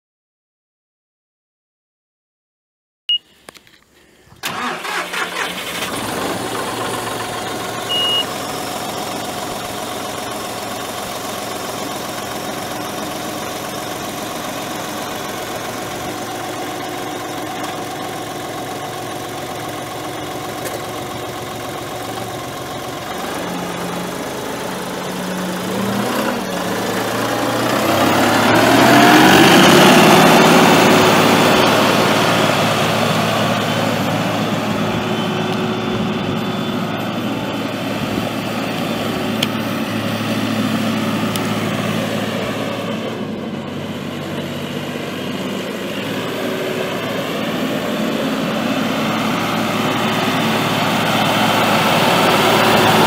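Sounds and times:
tractor engine idling and revving: 3.5 - 53.0
short beep: 7.9 - 8.3.

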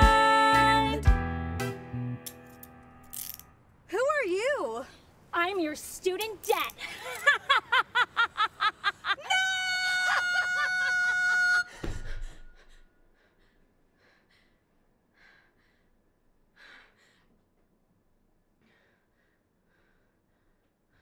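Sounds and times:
laughter: 6.8 - 9.3.

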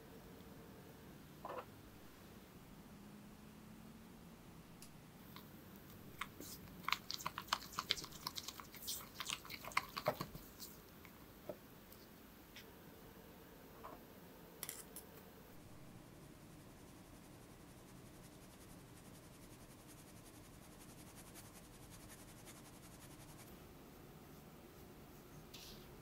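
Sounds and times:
spatula mixing butter wet clicks: 6.1 - 11.2.

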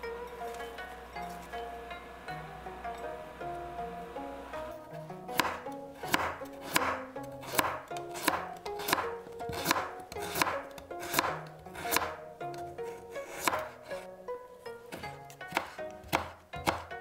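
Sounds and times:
knife chopping on wooden board: 5.3 - 14.0, 14.9 - 16.9.

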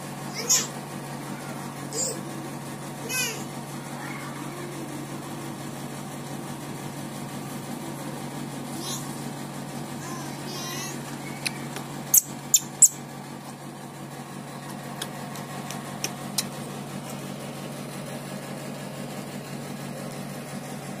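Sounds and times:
steady low hum: 0.0 - 21.0
baby monkey squeaking: 11.2 - 13.0.

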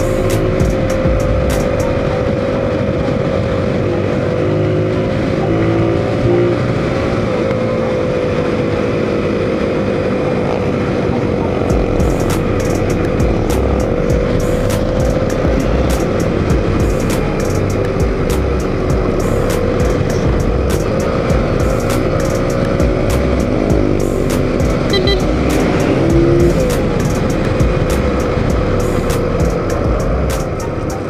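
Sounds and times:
background music with steady beat: 0.0 - 3.8, 11.5 - 31.0
motorcycle engine running: 0.0 - 31.0
wind and road noise: 0.0 - 31.0.

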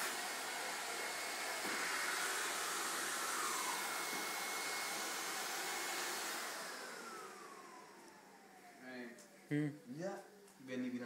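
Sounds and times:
vacuum cleaner running: 0.0 - 8.8.

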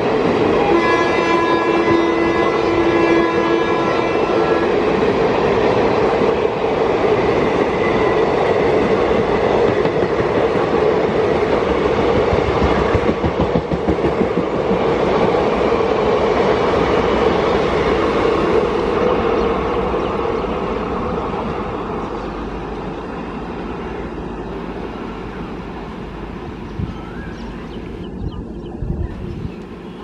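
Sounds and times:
train passing at speed: 0.0 - 30.0
train horn chord: 0.6 - 5.0.

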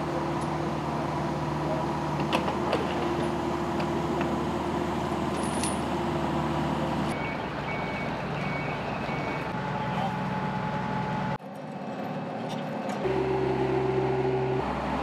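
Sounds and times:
diesel engines running: 0.0 - 15.0
reversing alarm beeping: 7.1 - 9.6.

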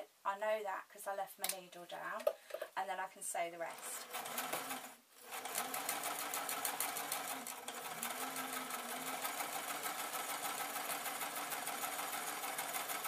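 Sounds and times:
sewing machine motor hum: 4.0 - 13.0
sewing machine needle stitching: 4.0 - 13.0.

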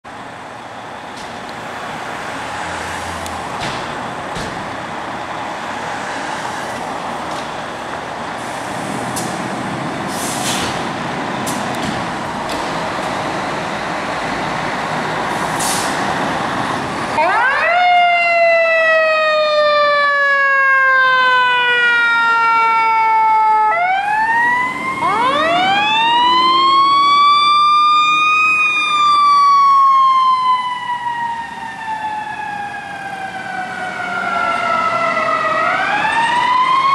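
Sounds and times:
fire truck engines rumbling: 0.0 - 36.9
fire truck siren wailing: 10.9 - 36.9.

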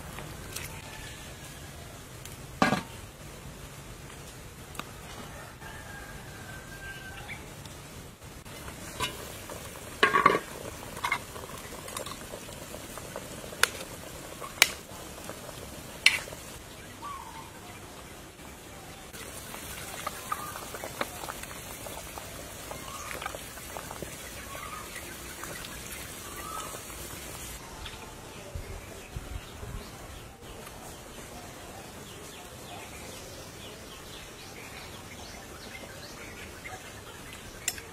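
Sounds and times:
metal utensils clinking on dishes: 10.0 - 11.2.

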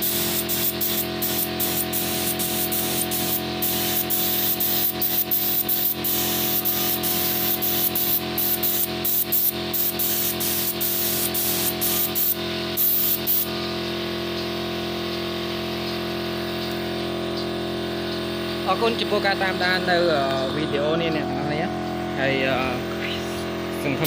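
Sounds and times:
spray gun hissing: 0.0 - 13.7.

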